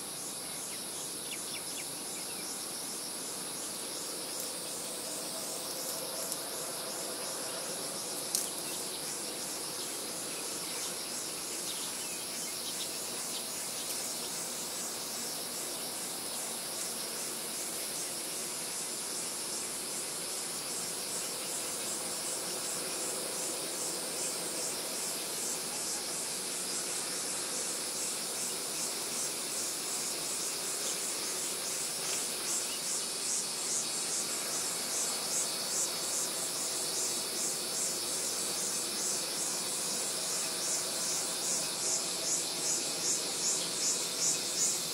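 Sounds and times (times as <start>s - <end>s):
insects trilling: 0.0s - 44.9s
steady background hiss: 0.0s - 44.9s.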